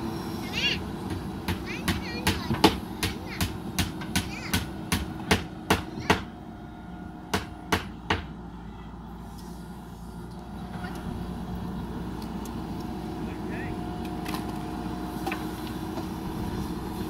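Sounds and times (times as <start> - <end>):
diesel engine running: 0.0 - 17.0
sharp knocks: 1.1 - 6.3, 7.3 - 8.3.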